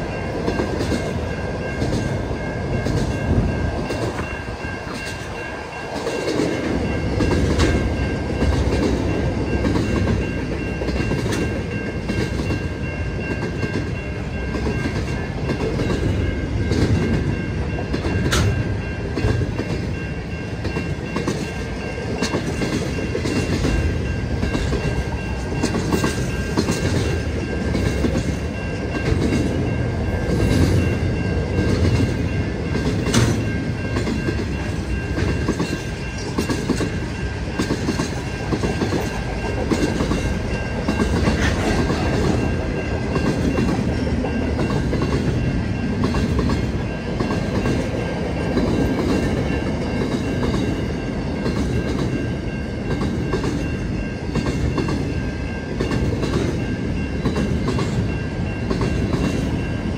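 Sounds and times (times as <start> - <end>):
freight train rumbling past: 0.0 - 59.9
wheels clicking over rail joints: 13.4 - 20.0.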